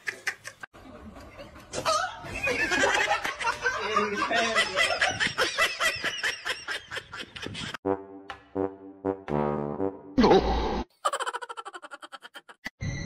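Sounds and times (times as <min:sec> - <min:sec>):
human laughter: 0:00.0 - 0:07.8, 0:10.2 - 0:12.7.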